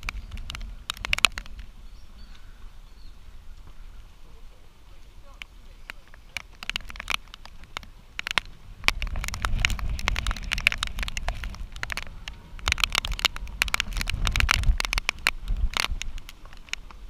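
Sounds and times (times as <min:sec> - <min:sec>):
low uneven rumble: 0:00.0 - 0:17.0
raindrops ticking: 0:00.0 - 0:17.0.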